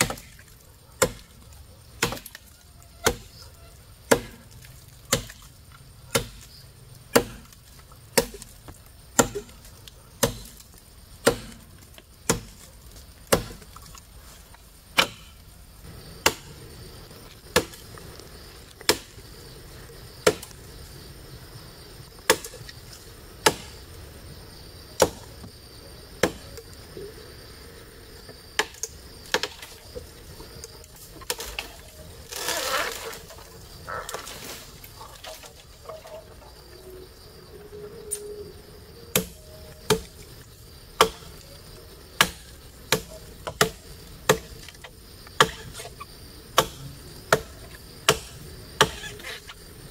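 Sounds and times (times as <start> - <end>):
wood being chopped: 0.0 - 14.1, 14.9 - 15.4, 16.2 - 16.6, 17.2 - 18.0, 18.8 - 19.2, 20.2 - 20.6, 22.2 - 22.8, 23.4 - 23.8, 25.0 - 25.5, 26.2 - 26.7, 28.6 - 33.4, 39.1 - 40.2, 41.0 - 41.5, 42.2 - 45.9, 46.6 - 49.2
rustling: 29.9 - 36.5.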